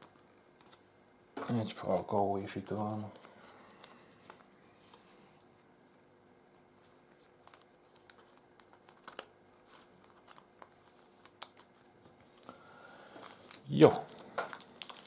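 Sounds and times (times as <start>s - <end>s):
plastic sleeve crinkling: 1.6s - 5.3s, 6.6s - 12.5s, 13.1s - 15.0s.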